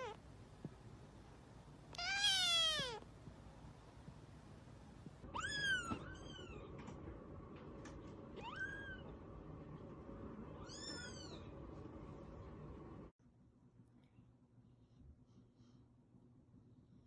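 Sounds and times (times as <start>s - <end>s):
faint steady hum: 0.0s - 17.0s
kittens mewing: 1.9s - 3.1s.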